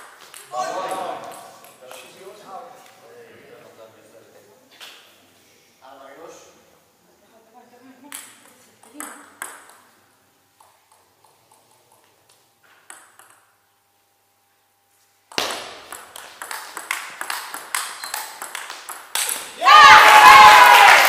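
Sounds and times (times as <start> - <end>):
table tennis ball hits: 0.0 - 2.1, 8.1 - 9.9, 10.6 - 13.6, 15.3 - 19.6.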